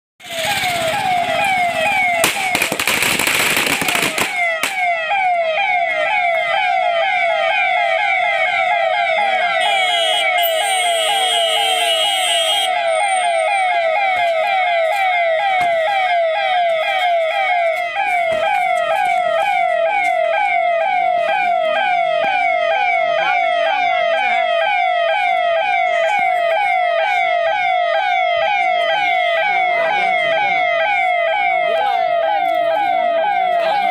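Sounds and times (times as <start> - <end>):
electronic siren yelping: 0.2 - 33.9
steady horn tone: 9.6 - 13.4.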